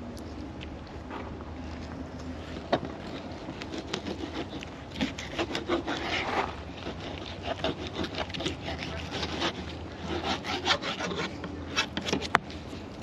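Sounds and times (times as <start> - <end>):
knife rasping over fish bone: 3.1 - 12.3.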